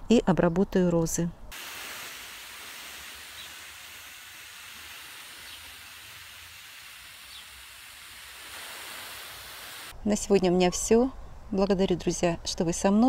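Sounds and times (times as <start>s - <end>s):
pressure sprayer hissing: 1.5s - 9.9s.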